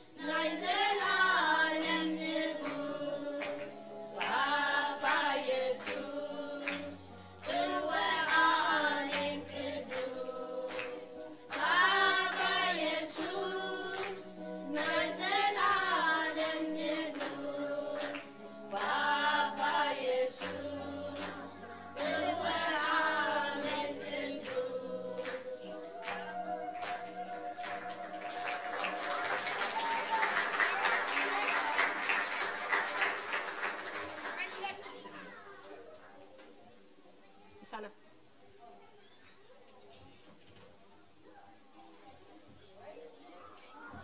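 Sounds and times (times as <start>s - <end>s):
group singing worship song: 0.0s - 30.7s.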